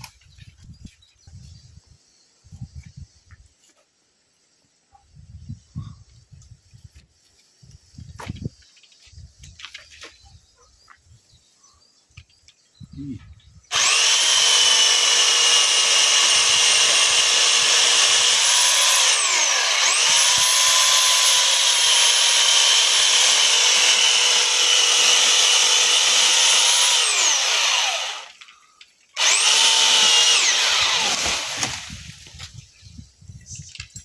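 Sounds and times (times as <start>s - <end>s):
electric pole saw whining: 13.7s - 28.6s, 29.2s - 32.1s.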